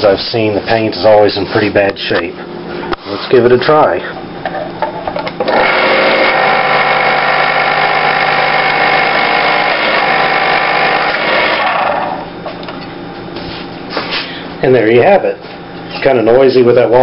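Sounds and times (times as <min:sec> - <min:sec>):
electric can opener motor hum: 0:05.2 - 0:12.4.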